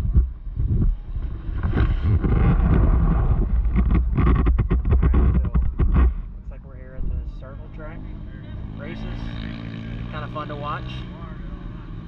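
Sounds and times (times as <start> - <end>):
wind rumbling on microphone: 0.0 - 7.4
many off-road vehicle engines rumbling: 0.0 - 12.0.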